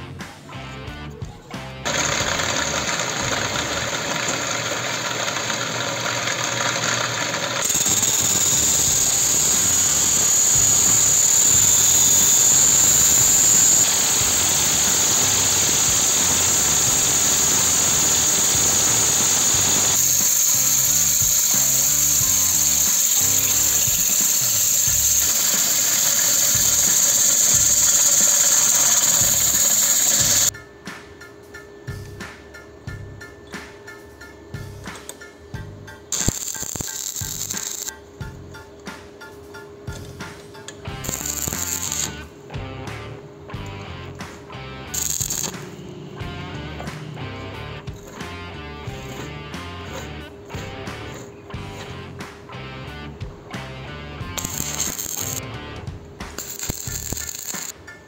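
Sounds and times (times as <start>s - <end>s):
lathe running: 1.9s - 30.5s, 54.4s - 55.4s
cutting disc screeching on metal: 7.6s - 30.5s, 36.1s - 37.9s, 41.0s - 42.2s, 44.9s - 45.6s, 54.4s - 55.4s
abrasive cloth sanding tube: 7.7s - 30.5s.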